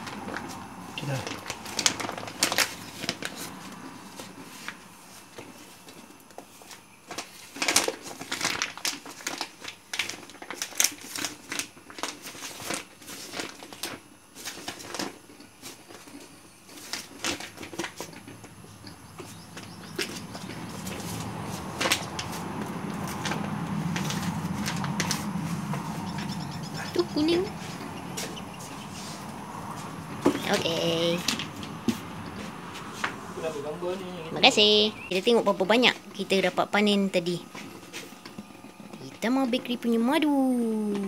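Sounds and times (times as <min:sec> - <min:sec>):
plastic sheet crinkling: 0:00.0 - 0:04.8, 0:06.5 - 0:31.8.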